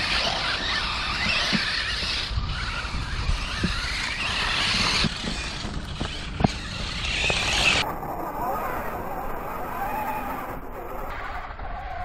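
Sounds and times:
rc trucks rushing on dirt: 0:00.0 - 0:12.0.

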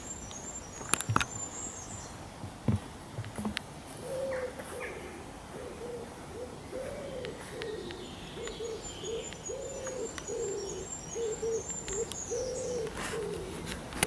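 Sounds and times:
pigeon cooing: 0:04.0 - 0:13.9.

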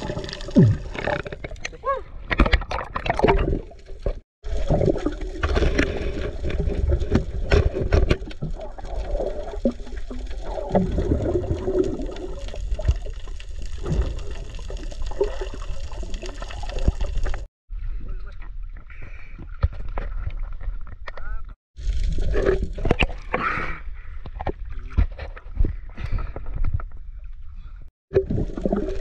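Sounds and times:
bubbling: 0:00.0 - 0:17.5, 0:28.1 - 0:29.0
water sloshing and gurgling: 0:00.0 - 0:17.5, 0:21.8 - 0:29.0.

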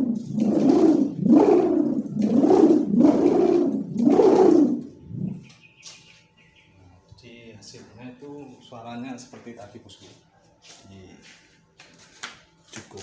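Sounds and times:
kite hummer humming: 0:00.0 - 0:05.5.

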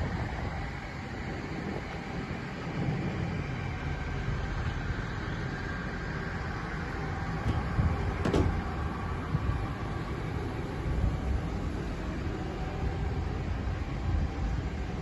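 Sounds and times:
tractor diesel engine idling: 0:03.8 - 0:13.7.

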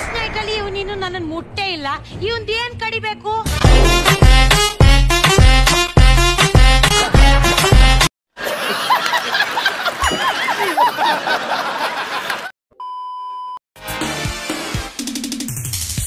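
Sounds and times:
music with strong beat: 0:03.5 - 0:08.1, 0:14.0 - 0:16.0
people laughing: 0:08.4 - 0:12.5
test-tone beep: 0:12.8 - 0:13.6.

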